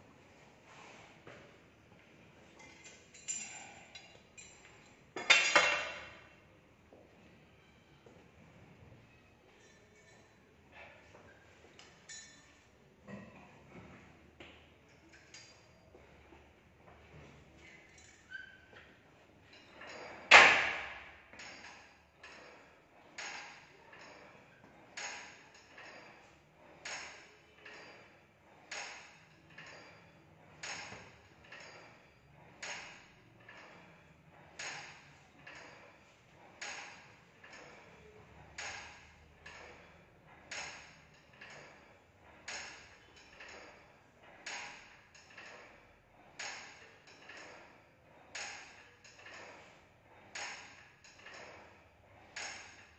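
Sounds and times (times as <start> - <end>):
weight-stack plates clinking: 2.6 - 6.3, 12.0 - 13.5, 17.0 - 52.9.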